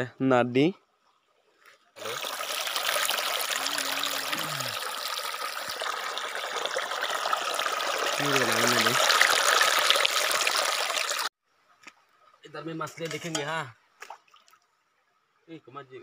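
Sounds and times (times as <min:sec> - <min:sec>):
stream flowing over stones: 0:02.0 - 0:11.3
person speaking: 0:03.4 - 0:05.0, 0:08.1 - 0:09.2.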